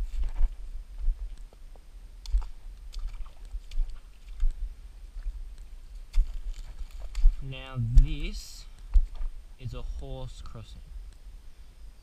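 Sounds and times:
footsteps on creek stones: 0.0s - 9.4s
footsteps on dry leaves: 6.0s - 7.5s.

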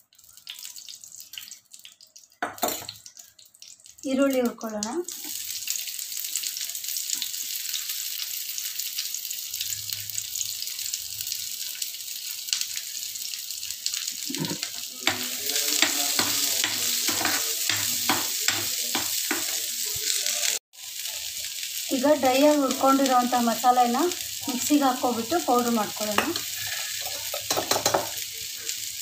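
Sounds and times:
onions sizzling in hot oil: 0.0s - 29.0s
ladle scraping and clinking pan: 14.4s - 19.6s, 26.2s - 28.2s.

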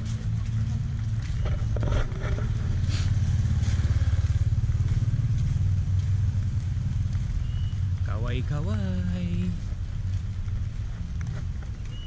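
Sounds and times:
small engine running: 0.2s - 8.0s.

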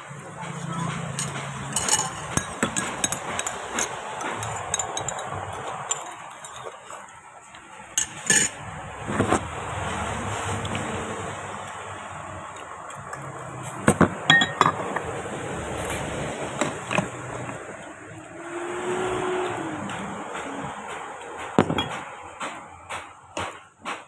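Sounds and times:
spoon clinking on ceramic bowls: 0.9s - 7.1s, 8.0s - 8.6s, 14.3s - 15.1s.

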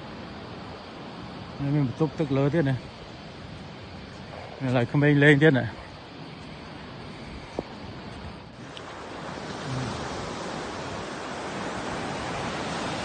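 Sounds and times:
surf breaking on beach: 8.6s - 13.0s.

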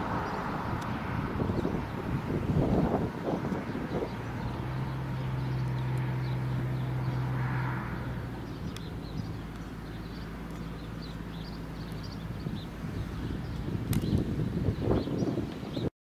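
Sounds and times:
low engine hum: 0.0s - 15.9s
small birds chirping: 0.0s - 15.9s.

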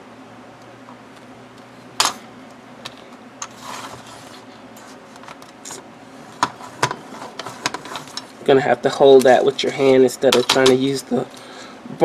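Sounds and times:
plastic sheet scraping slide: 3.6s - 4.4s.

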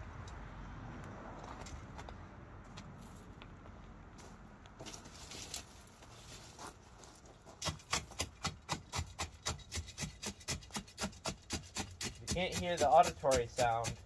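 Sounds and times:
hand tool rasping: 7.6s - 14.0s.

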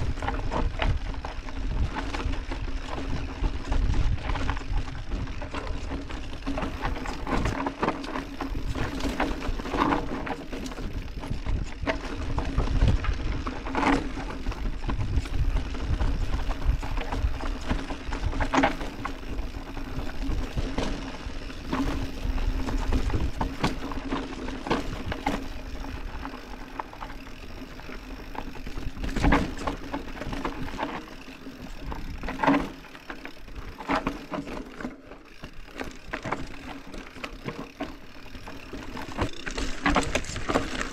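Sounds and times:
bike knocking and rattling: 0.0s - 40.9s
tyres on dirt: 0.0s - 40.9s.

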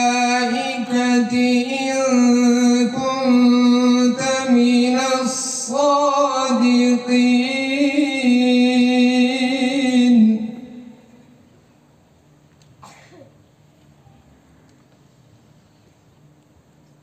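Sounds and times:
man chanting melodically: 0.0s - 11.1s.

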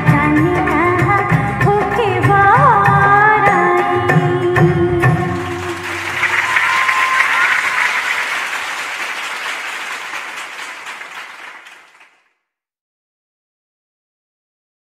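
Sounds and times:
audience applauding: 5.4s - 12.3s.

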